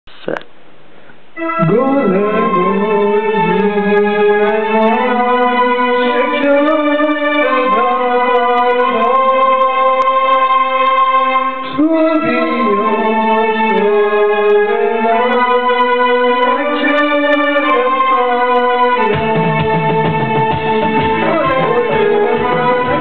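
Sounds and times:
acoustic guitar: 1.4s - 23.0s
keyboard melody: 1.4s - 23.0s.

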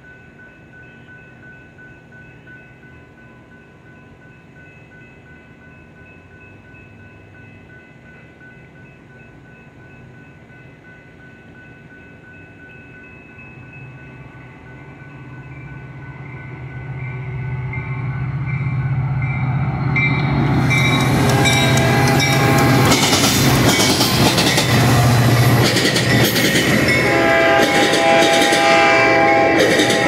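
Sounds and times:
diesel locomotive engine drone: 0.0s - 30.0s
train wheels clattering: 20.0s - 30.0s
train horn chord: 20.8s - 23.1s, 26.8s - 30.0s.

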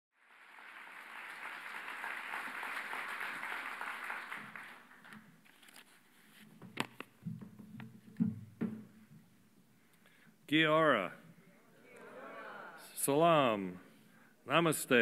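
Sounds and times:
audience applauding: 0.2s - 5.2s.

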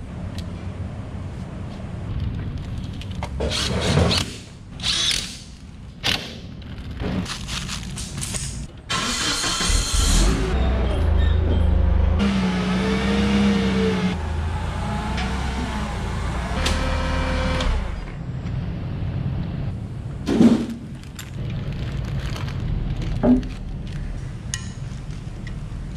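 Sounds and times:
forklift engine running: 8.8s - 20.2s.

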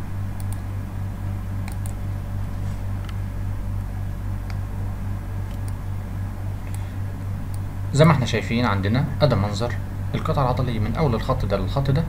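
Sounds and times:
low background hum: 0.0s - 12.0s
faint short clicks: 1.6s - 2.0s.

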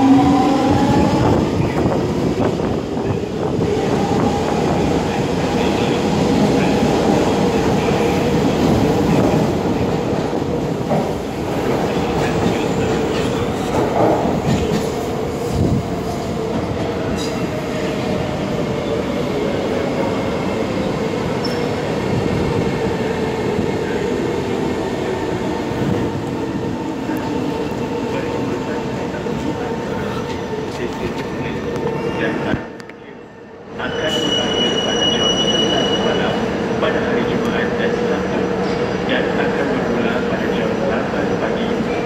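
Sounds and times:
train wheels rumbling on rails: 0.0s - 32.8s.

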